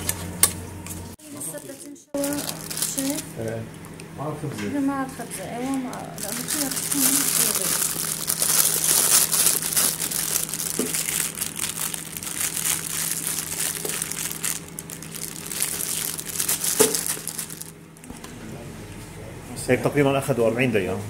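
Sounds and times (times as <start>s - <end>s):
plastic piping bag crinkling: 1.2s - 3.3s, 5.7s - 18.2s.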